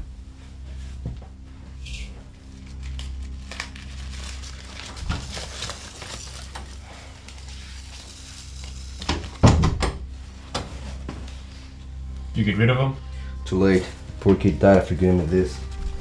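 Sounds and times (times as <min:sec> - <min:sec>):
low steady hum: 0:00.0 - 0:16.0
door shutting with a thud: 0:09.4 - 0:10.0.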